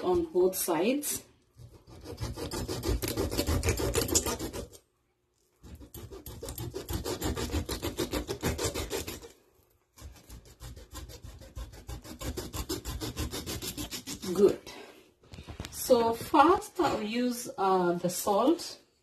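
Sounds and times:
knife rasping through fish skin: 1.6 - 4.8, 5.4 - 14.6.

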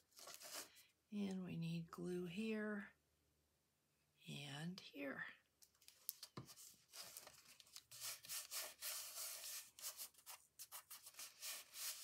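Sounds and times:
hands rubbing paper: 6.2 - 12.0.

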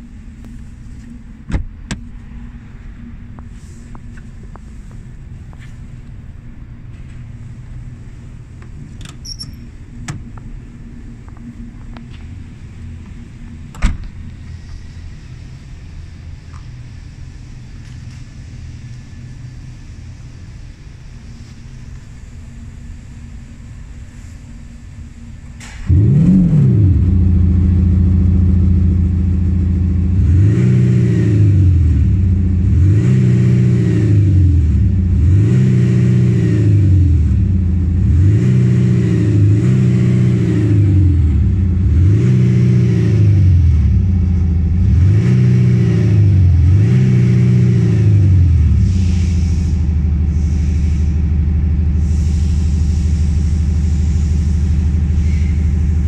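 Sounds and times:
car engine idling: 0.0 - 56.0
synthetic exhaust note revving: 25.9 - 29.1.

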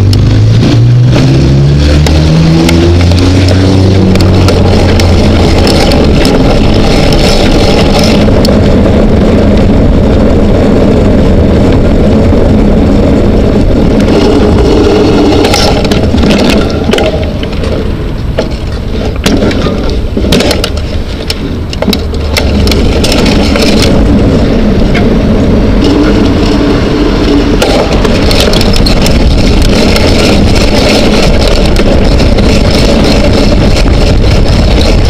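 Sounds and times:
bicycle tyre rumble: 0.0 - 35.0
wind rushing over microphone: 0.0 - 35.0
bike knocks and rattles: 2.8 - 8.6, 14.0 - 24.2, 27.4 - 35.0.

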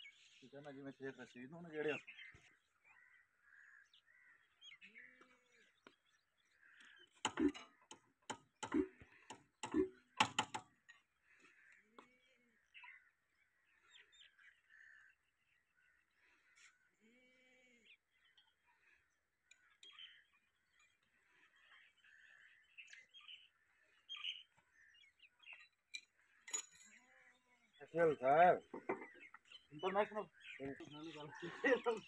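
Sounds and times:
birds chirping: 0.0 - 32.0
sharp knocks and clicks on engine: 7.2 - 10.7.

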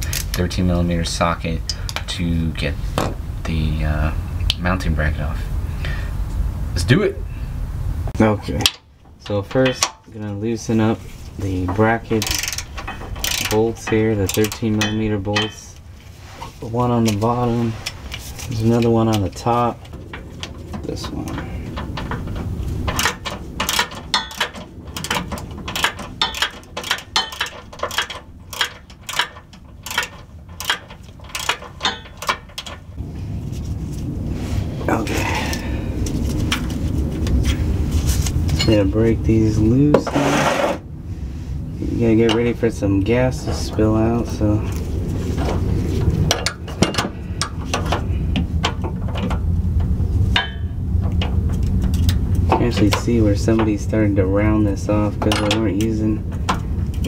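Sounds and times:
steady low hum: 0.0 - 57.0
wrenches clinking on metal: 11.7 - 15.8, 17.8 - 32.9
ratchet clicking: 12.2 - 15.6, 21.9 - 32.8.

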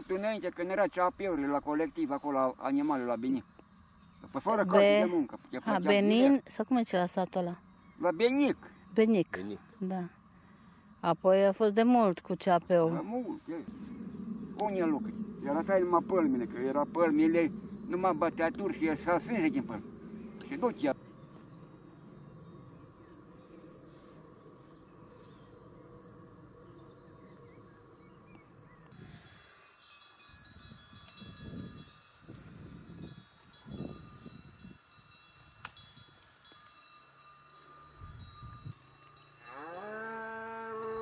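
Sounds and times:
insects trilling: 0.0 - 41.0
cow mooing: 39.4 - 41.0.

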